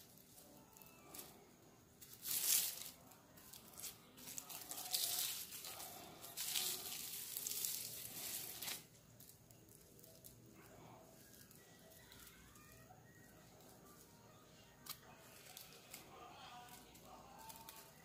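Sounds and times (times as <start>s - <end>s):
cord rubbed against skin: 3.8s - 8.9s.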